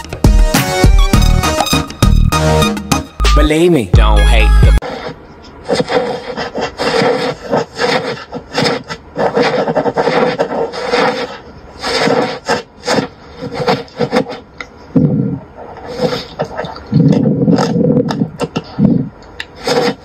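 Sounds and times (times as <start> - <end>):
rough rasping strokes: 4.8 - 20.0.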